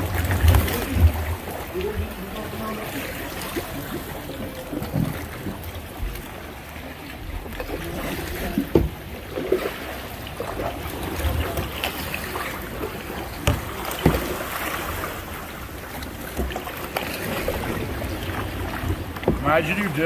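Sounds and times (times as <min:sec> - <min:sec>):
paddles splashing in water: 0:00.0 - 0:20.0.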